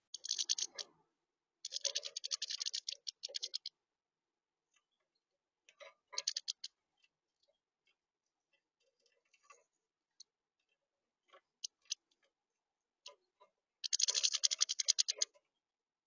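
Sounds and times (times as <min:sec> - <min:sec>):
birds pecking on plastic tray: 0:00.1 - 0:01.0, 0:01.6 - 0:03.7, 0:05.7 - 0:07.1, 0:13.8 - 0:15.4.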